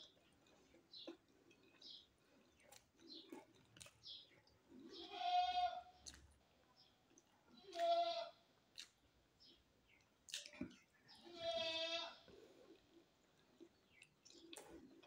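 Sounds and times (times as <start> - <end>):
soft eating clicks: 0.0 - 5.0, 5.9 - 8.0, 8.6 - 11.2, 12.7 - 15.0.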